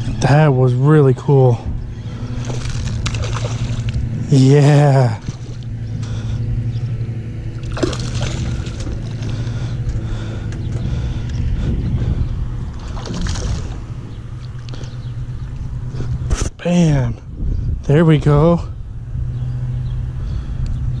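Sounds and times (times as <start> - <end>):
motor droning: 0.0 - 21.0
fish splashing at surface: 2.4 - 3.8, 7.6 - 9.0
lure splashing on water: 2.4 - 4.0, 7.6 - 9.3, 12.8 - 13.8.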